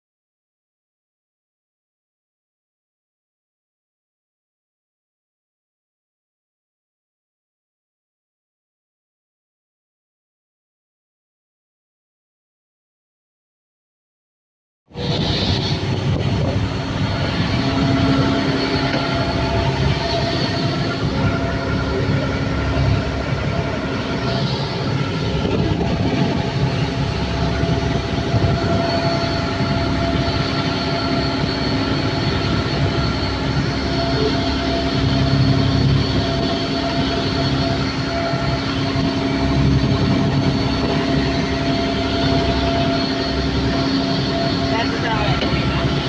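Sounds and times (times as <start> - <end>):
boat engine droning: 14.9 - 46.0
water rushing from wake: 15.0 - 46.0.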